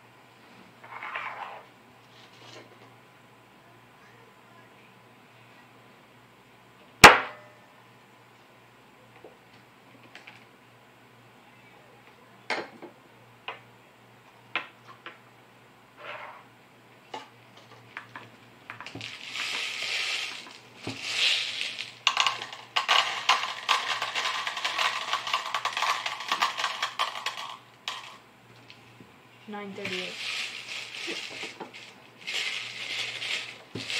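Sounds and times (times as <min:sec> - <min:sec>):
scratchy rustling handling noise: 0:19.0 - 0:28.1, 0:29.8 - 0:33.9.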